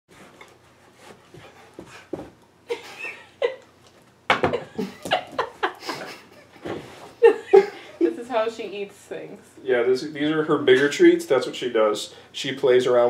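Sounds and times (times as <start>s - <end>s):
dog panting: 0.1s - 2.4s.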